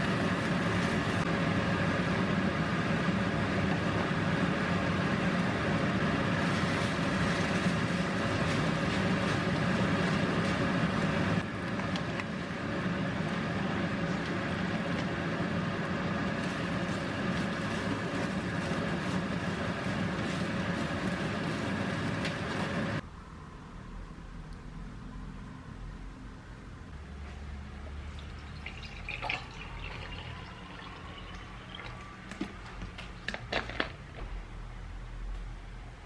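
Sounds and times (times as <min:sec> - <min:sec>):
rice sizzling in a pan: 0:00.0 - 0:11.5.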